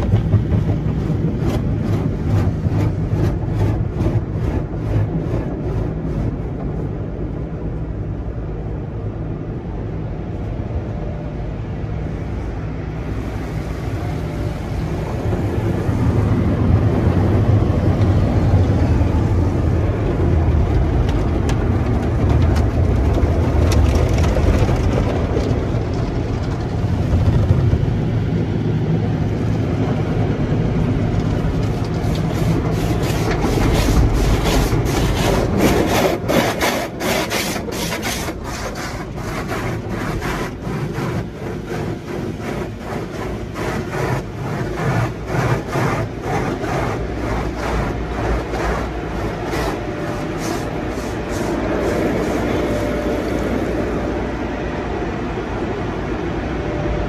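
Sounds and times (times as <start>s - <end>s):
water spraying on car: 0.0s - 10.3s, 11.6s - 57.0s
low rumble: 0.0s - 36.1s, 38.4s - 57.0s
cloth strips scrubbing car body: 0.1s - 7.4s, 31.2s - 54.0s.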